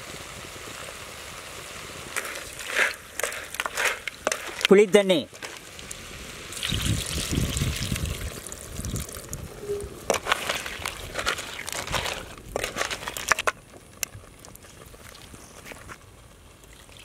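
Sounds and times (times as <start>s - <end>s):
liquid pouring and splashing: 2.1s - 9.4s, 10.1s - 13.4s, 16.7s - 17.0s
ladle scraping clay pot: 2.2s - 5.7s, 9.6s - 13.5s.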